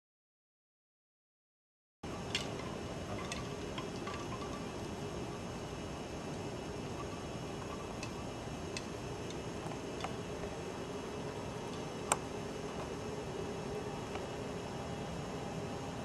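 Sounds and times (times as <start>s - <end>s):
steady background hiss: 2.0s - 16.0s.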